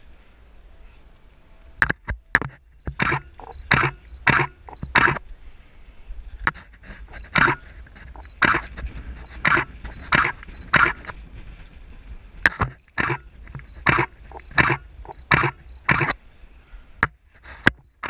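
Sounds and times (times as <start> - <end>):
low wind rumble on microphone: 0.0 - 18.0
person breathing hard: 6.6 - 8.2.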